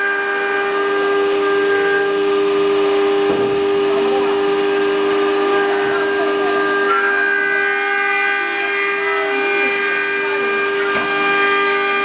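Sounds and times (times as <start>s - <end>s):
cnc router spindles whining: 0.0s - 12.0s
high tones: 4.3s - 12.0s.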